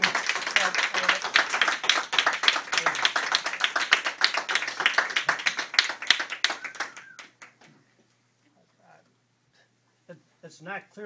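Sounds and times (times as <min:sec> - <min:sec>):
crowd applauding: 0:00.0 - 0:07.7.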